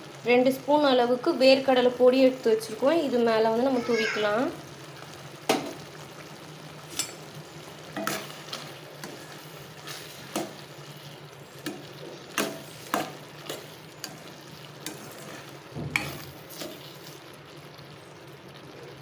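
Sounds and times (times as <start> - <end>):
gravy sizzling: 0.0 - 19.0
ladle scraping a metal pan: 8.0 - 11.0, 12.4 - 17.2.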